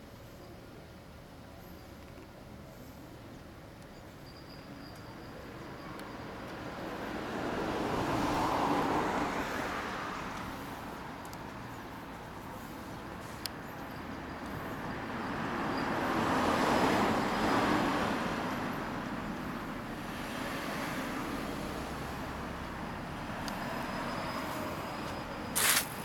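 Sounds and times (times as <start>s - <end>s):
traffic hum: 0.0s - 26.0s
short sharp hissing burst: 25.6s - 26.0s.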